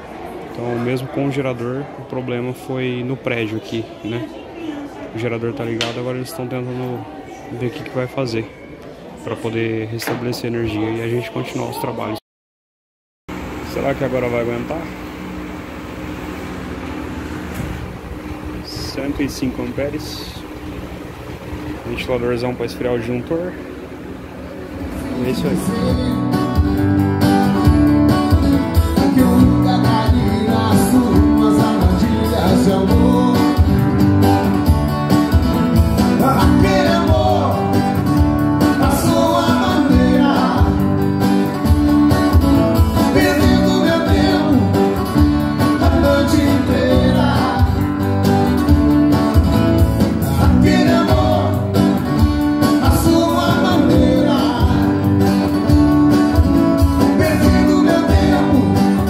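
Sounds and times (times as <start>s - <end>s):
acoustic guitars strummed: 23.5s - 59.0s
man singing: 25.1s - 26.8s, 28.9s - 34.2s, 36.1s - 38.0s, 38.6s - 41.1s, 43.0s - 48.1s, 50.2s - 55.6s, 57.0s - 59.0s.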